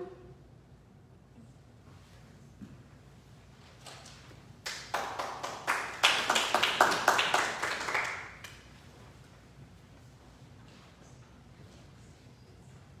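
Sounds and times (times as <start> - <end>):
people clapping: 3.8 - 8.9.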